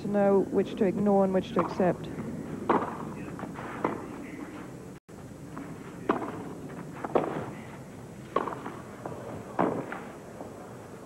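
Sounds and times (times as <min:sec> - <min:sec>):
steady background noise: 0:00.0 - 0:11.0
tennis ball hit by rackets: 0:02.6 - 0:04.1, 0:06.0 - 0:07.6, 0:08.3 - 0:10.1.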